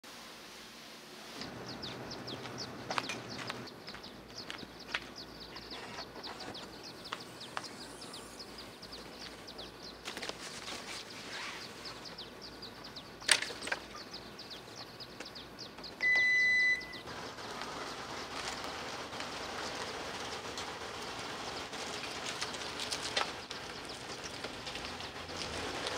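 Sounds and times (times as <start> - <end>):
faint chirps: 1.4 - 18.7
short electronic beep: 16.0 - 17.0
steady rushing noise: 17.1 - 25.9
gear clicks and knocks: 17.5 - 25.9.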